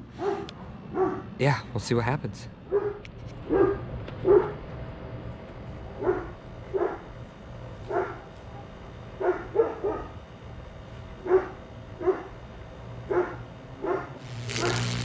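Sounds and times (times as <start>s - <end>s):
dog barking: 0.2s - 1.3s, 2.7s - 4.6s, 6.0s - 7.1s, 7.9s - 10.2s, 11.2s - 12.4s, 13.1s - 15.0s.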